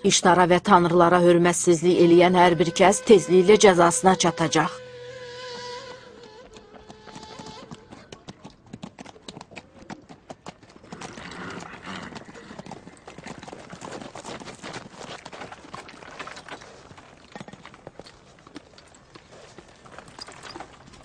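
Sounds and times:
horse hooves clip-clopping: 5.5s - 21.0s.

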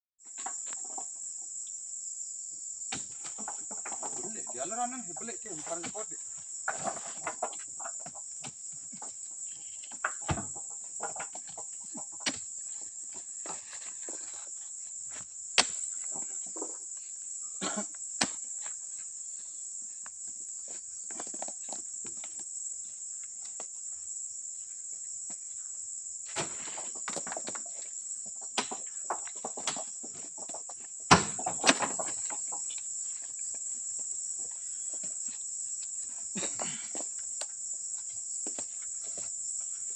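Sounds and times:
insects chorus: 0.2s - 39.9s
knocks and thuds of fruit bunches: 2.9s - 9.2s, 10.0s - 12.5s, 26.3s - 27.6s, 31.1s - 32.4s.

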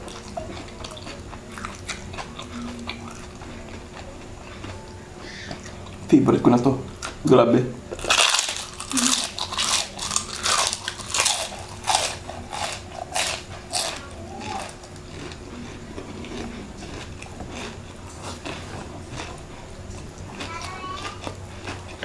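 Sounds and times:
soft chewing: 0.0s - 7.3s, 7.9s - 22.0s
crunching of crispy chicken skin: 8.0s - 15.4s.

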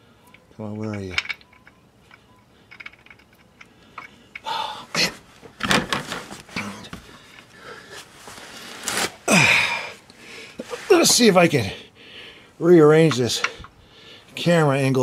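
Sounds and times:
man breathing heavily: 3.7s - 5.2s, 7.0s - 8.7s, 9.3s - 10.8s, 11.6s - 12.6s, 13.3s - 14.4s.

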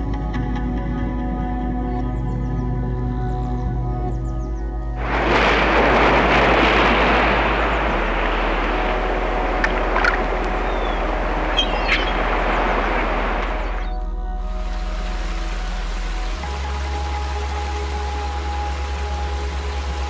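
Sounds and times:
low steady tone: 0.0s - 20.0s
short sharp splashes: 5.0s - 13.9s
sea water washing and splashing: 5.0s - 20.0s.

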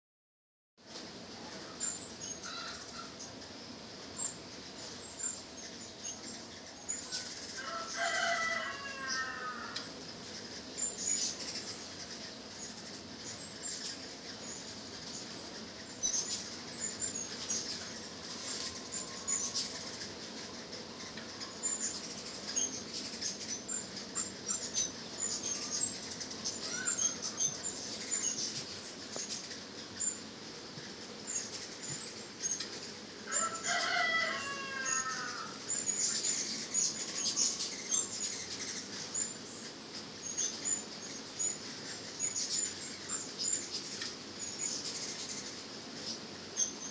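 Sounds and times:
hummingbirds chipping and squeaking: 1.2s - 46.9s
buzz of wings: 1.5s - 46.9s
lower-pitched bird call: 1.6s - 3.3s, 5.1s - 9.9s, 23.5s - 28.4s, 33.3s - 39.4s.

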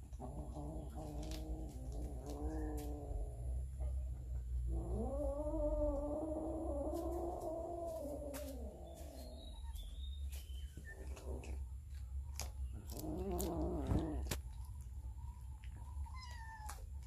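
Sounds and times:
cat yowling growl: 0.1s - 3.9s, 4.6s - 9.2s, 12.9s - 14.3s, 16.0s - 17.0s.

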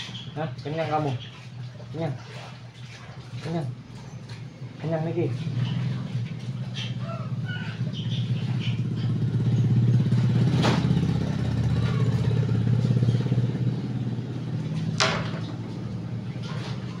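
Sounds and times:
small engine running: 4.0s - 17.0s.

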